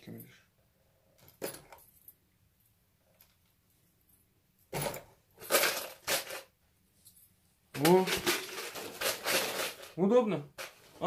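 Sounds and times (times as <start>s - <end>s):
metal brackets rattling in bottle: 7.8s - 10.0s.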